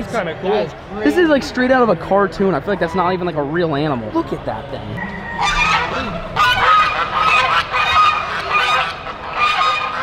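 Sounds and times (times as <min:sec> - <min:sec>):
geese honking: 0:05.0 - 0:10.0.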